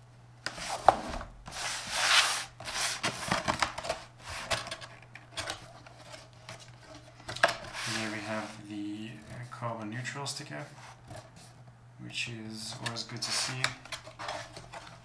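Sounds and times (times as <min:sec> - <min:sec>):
cardboard rubbing and scraping: 0:00.5 - 0:03.4, 0:07.6 - 0:08.7.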